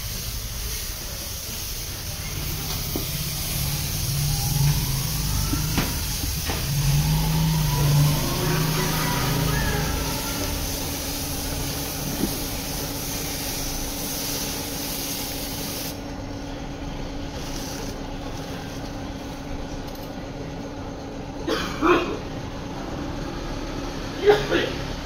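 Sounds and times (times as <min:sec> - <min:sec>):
paint spray gun hissing: 0:00.0 - 0:16.0.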